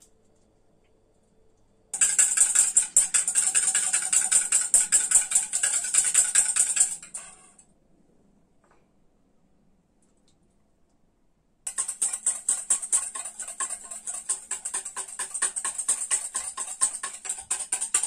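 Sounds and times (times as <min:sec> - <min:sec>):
whisk beating in metal bowl: 0:02.0 - 0:07.5, 0:11.7 - 0:18.0.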